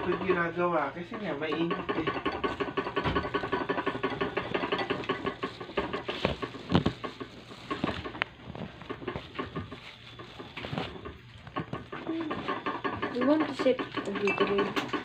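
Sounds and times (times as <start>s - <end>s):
plastic bag rustling and crinkling: 4.8s - 12.5s.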